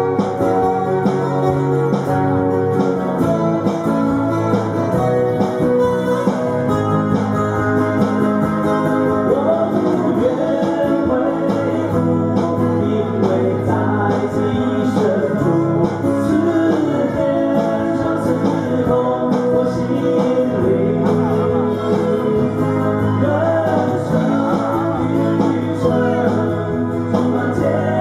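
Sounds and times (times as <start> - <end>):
strummed amplified guitars: 0.0 - 28.0
men singing: 9.1 - 28.0.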